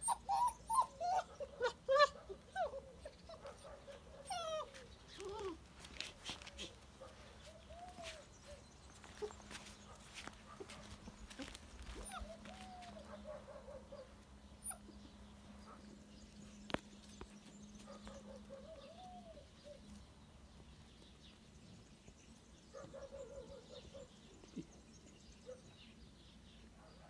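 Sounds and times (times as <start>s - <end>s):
puppy whining: 0.0s - 6.8s, 11.4s - 13.2s, 14.6s - 15.1s.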